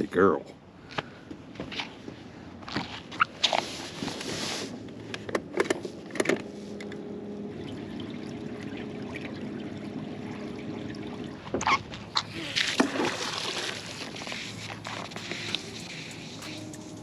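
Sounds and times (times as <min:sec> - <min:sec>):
steady low hum: 0:04.7 - 0:17.0.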